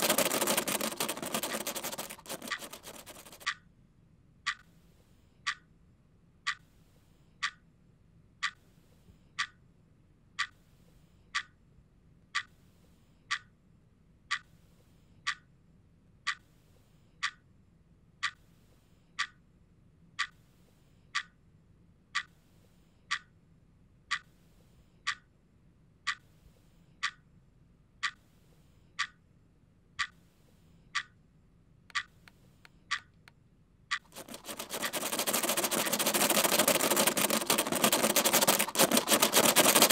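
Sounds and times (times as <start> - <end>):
clock ticking: 0.0 - 3.6, 29.0 - 29.2, 30.0 - 30.2, 31.9 - 33.2, 33.9 - 39.9.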